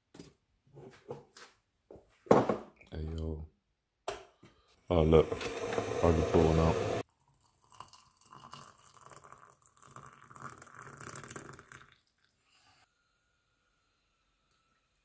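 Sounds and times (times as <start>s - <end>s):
hot water pouring into mug: 5.0s - 12.8s.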